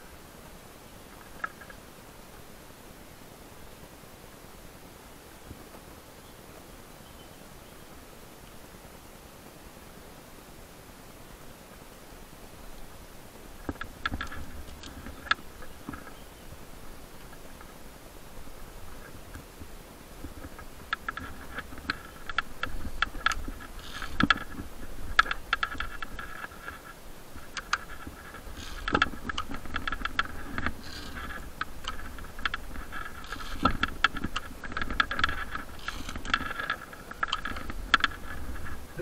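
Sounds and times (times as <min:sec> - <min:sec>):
rope scraping: 0:20.2 - 0:39.0.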